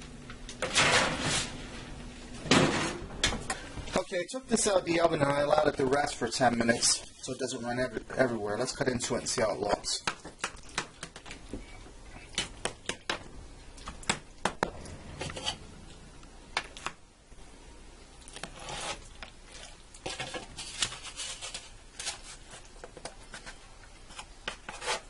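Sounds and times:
knife scraping metal baking pan: 0:15.1 - 0:15.7, 0:18.4 - 0:19.1, 0:24.5 - 0:25.0.

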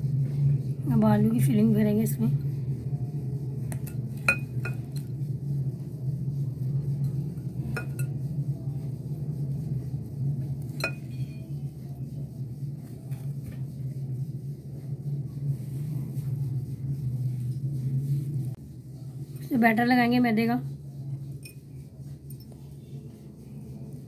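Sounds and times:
steady low hum: 0:00.0 - 0:24.0
metal spoon clinking on bowl: 0:03.8 - 0:04.9, 0:07.8 - 0:08.1, 0:10.8 - 0:11.2.

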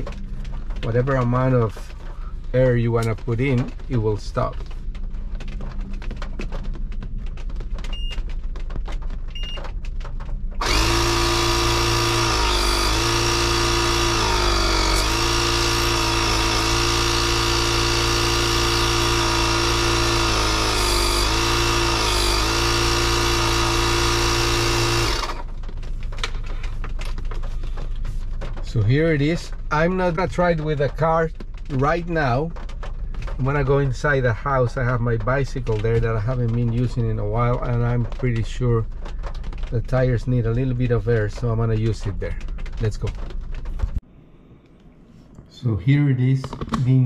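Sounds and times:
compressor motor buzzing: 0:10.6 - 0:25.6.

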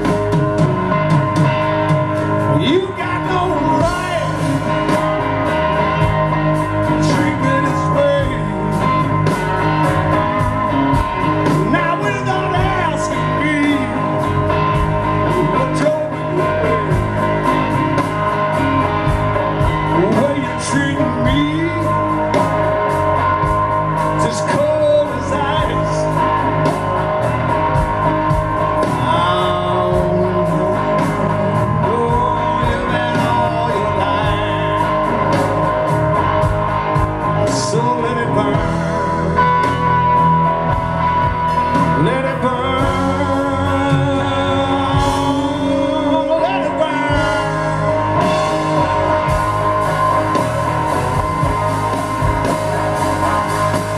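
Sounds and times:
blues-rock band playing: 0:00.0 - 0:53.9
man singing: 0:02.4 - 0:06.2, 0:06.8 - 0:09.8, 0:10.4 - 0:17.8, 0:19.6 - 0:22.6, 0:24.1 - 0:26.4, 0:28.8 - 0:35.6, 0:37.3 - 0:39.6, 0:41.6 - 0:49.6.

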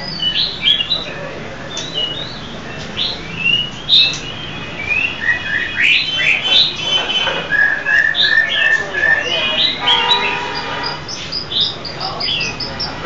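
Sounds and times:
bird singing whistled phrases: 0:01.7 - 0:10.4.

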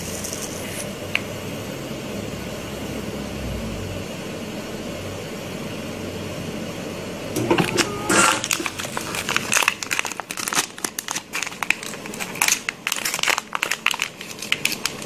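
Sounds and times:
plastic bag crinkling: 0:08.2 - 0:15.0.

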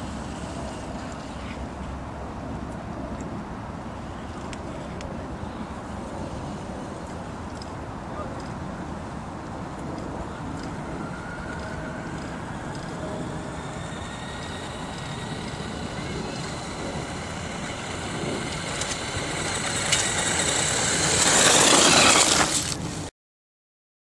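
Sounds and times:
electric motor whine: 0:10.4 - 0:22.8
tyres crunching on gravel: 0:13.5 - 0:22.9.

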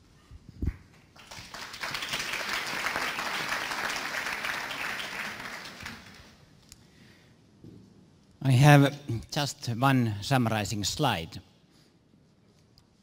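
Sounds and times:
audience applauding: 0:01.1 - 0:06.4.

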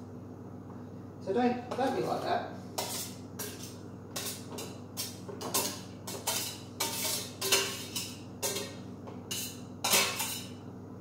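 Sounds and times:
utensil clinking against dishes: 0:02.8 - 0:10.6.

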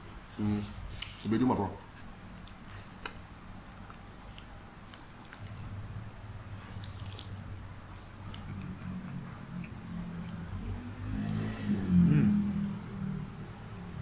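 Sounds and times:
low steady hum: 0:00.0 - 0:14.0
person chewing a burger: 0:02.4 - 0:05.7, 0:06.5 - 0:10.5.

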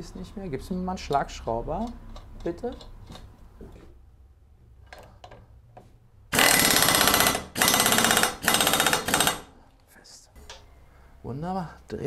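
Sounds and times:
pneumatic impact wrench hammering: 0:06.3 - 0:09.5.

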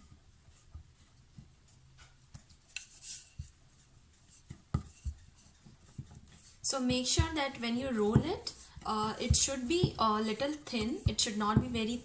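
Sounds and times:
rolling pin knocking on board: 0:04.5 - 0:05.2, 0:06.8 - 0:12.0.

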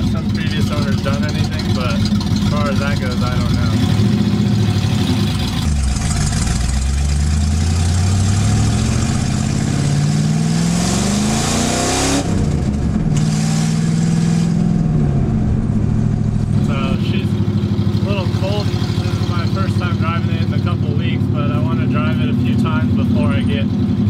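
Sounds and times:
car engine accelerating: 0:00.0 - 0:24.0.

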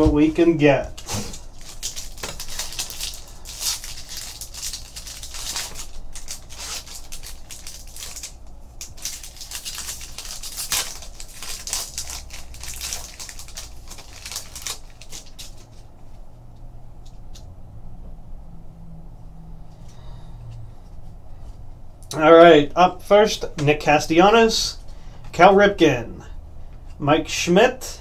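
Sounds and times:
foil wrapper tearing and crinkling: 0:01.0 - 0:15.8.

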